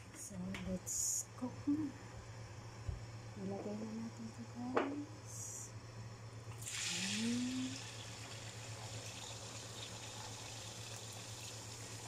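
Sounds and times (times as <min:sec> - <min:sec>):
egg sizzling in hot oil: 0:06.5 - 0:12.0.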